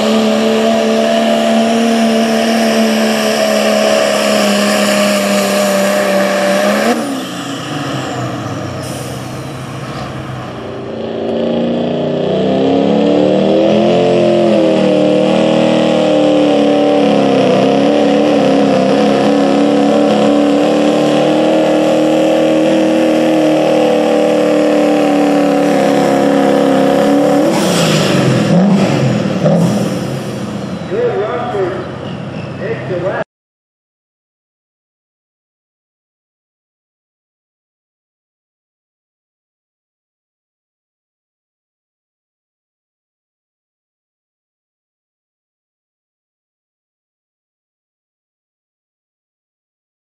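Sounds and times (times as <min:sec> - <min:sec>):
diesel truck engines at full throttle: 0:00.0 - 0:33.2.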